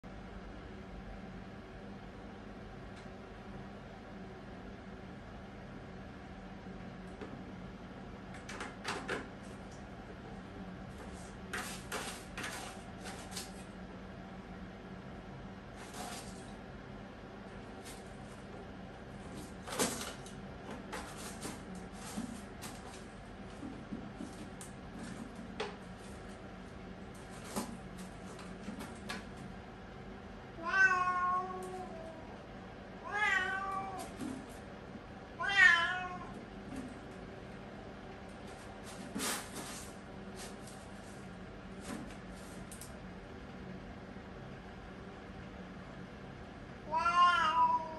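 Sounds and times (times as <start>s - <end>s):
cat scratching in litter: 10.9s - 13.8s, 15.7s - 16.6s, 17.6s - 29.4s, 38.3s - 42.9s
cat meowing: 30.6s - 32.2s, 33.0s - 34.1s, 35.4s - 36.3s, 46.9s - 47.9s.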